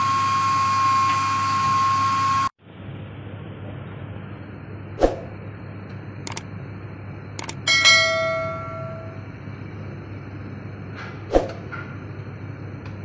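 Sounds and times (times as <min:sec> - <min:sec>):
steady low hum: 0:02.6 - 0:13.0
sharp clicks: 0:06.3 - 0:06.5, 0:07.4 - 0:07.6
metal bell-like clang: 0:07.7 - 0:09.3.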